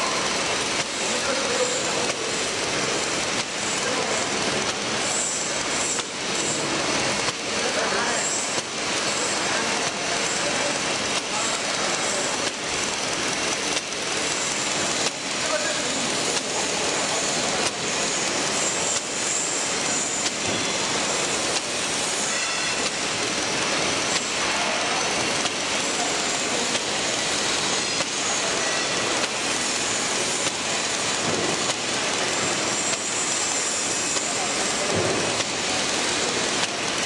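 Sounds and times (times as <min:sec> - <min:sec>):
laminating machine running: 0:00.0 - 0:37.0
faint regular clicks: 0:13.6 - 0:13.9.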